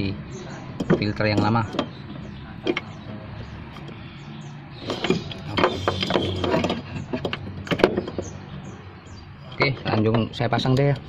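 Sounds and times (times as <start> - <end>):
rustling and scraping handling: 1.4 - 8.4.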